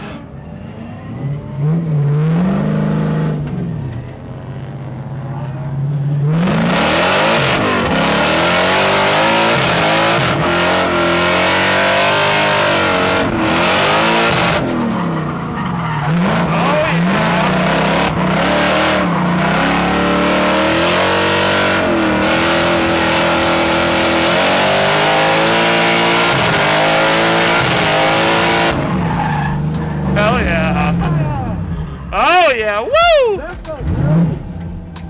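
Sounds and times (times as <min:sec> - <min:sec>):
supercharged engine revving: 0:06.2 - 0:31.7, 0:33.7 - 0:34.6.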